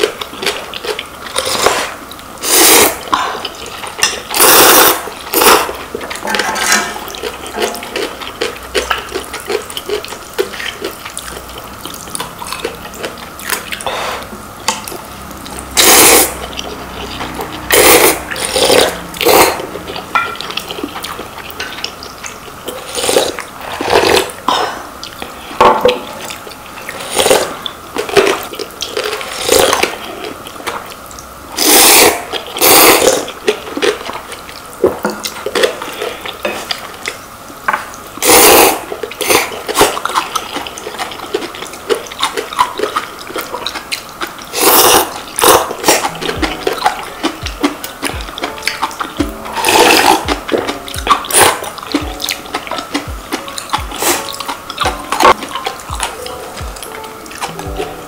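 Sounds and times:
people slurping noodles: 1.4 - 3.6, 4.3 - 5.8, 15.8 - 19.8, 31.6 - 33.3, 38.2 - 40.2, 44.5 - 54.6
chewing and mouth smacks: 38.2 - 58.0.

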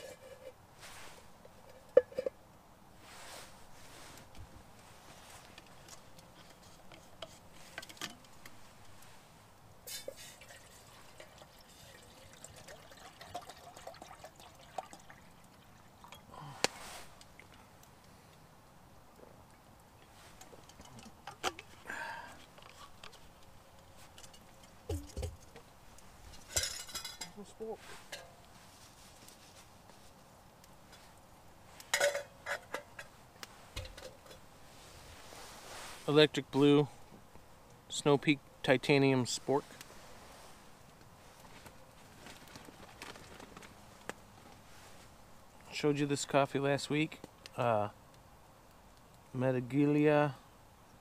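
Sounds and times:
wood fire crackling: 0.0 - 51.0
metal cookware clinking: 32.0 - 33.0.

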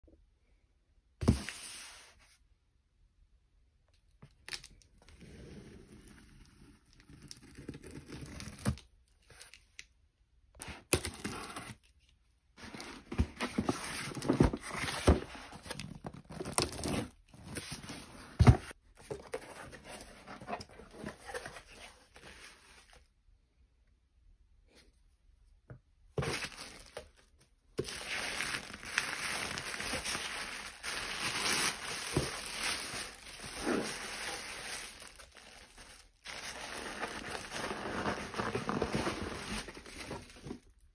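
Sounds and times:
tissue paper crinkling: 27.8 - 40.8.

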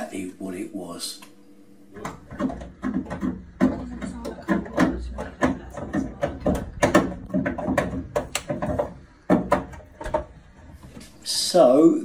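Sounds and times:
boiler clunking and banging: 2.0 - 11.0.

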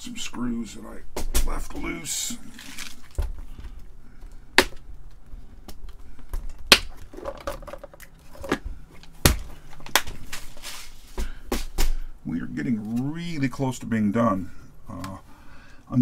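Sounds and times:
small parts rattling: 7.0 - 8.6.

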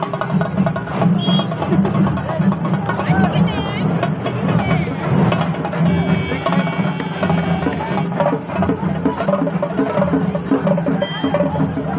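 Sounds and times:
drums played with sticks: 0.0 - 11.9.

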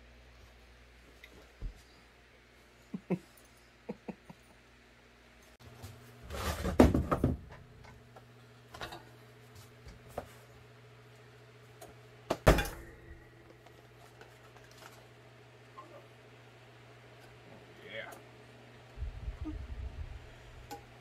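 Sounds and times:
rustling and clatter of foam pads: 5.8 - 7.5
steady low hum: 7.1 - 21.0.

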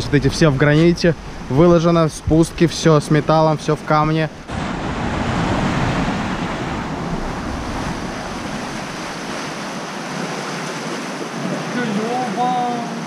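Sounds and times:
surf washing against rocks: 0.1 - 13.0
wind rumbling on microphone: 4.3 - 11.7.

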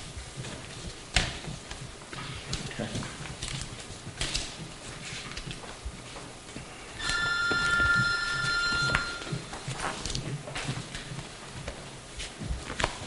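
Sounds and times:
two-pitch electronic tone: 7.0 - 9.5.

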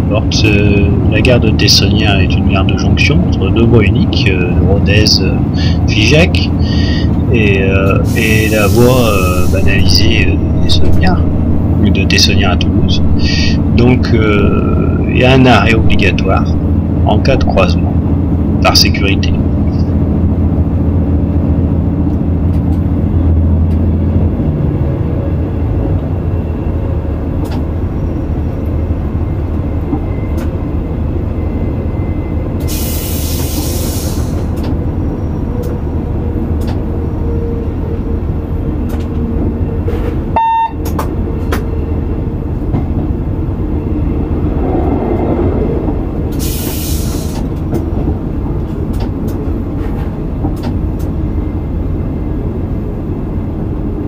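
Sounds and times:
diesel railcar engine running: 0.0 - 54.0
short hisses: 46.3 - 47.5.

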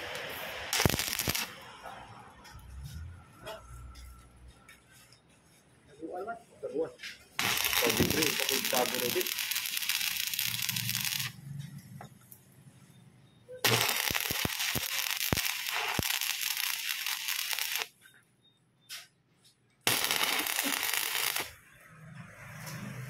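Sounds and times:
welding arc crackling and hissing: 0.0 - 1.8, 7.4 - 11.4, 13.6 - 17.9, 19.9 - 21.6.

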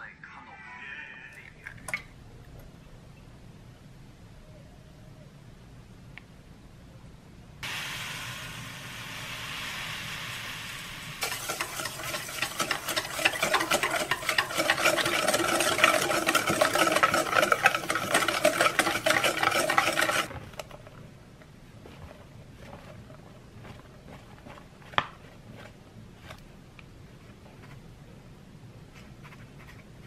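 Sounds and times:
liquid pouring into metal bowl: 11.2 - 20.3
whisk beating against metal bowl: 11.2 - 20.3.

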